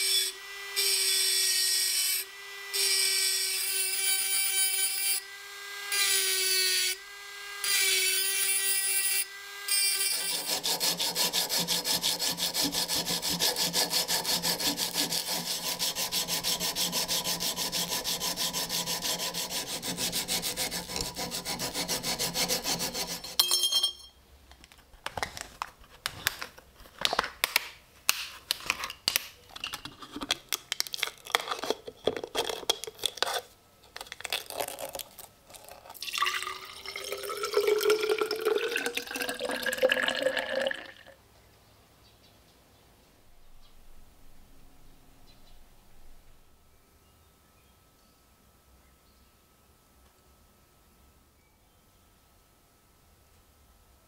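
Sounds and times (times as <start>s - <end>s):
rotary tool whining grinding: 0.0s - 23.4s
belt sander grinding: 8.2s - 23.4s
handling clicks and crinkling: 24.5s - 36.0s
foil tearing: 30.5s - 35.9s.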